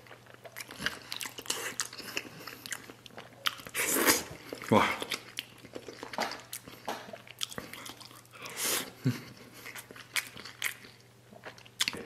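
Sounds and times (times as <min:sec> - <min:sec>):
man chewing with wet smacks: 0:00.0 - 0:12.0.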